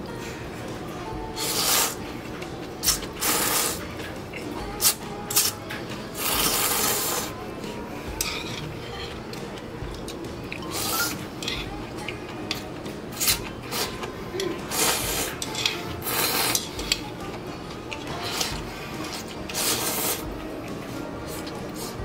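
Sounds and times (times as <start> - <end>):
slurping noodles: 1.4 - 2.0, 2.8 - 3.9, 6.2 - 7.4, 10.5 - 11.3, 13.1 - 16.8, 18.2 - 20.3.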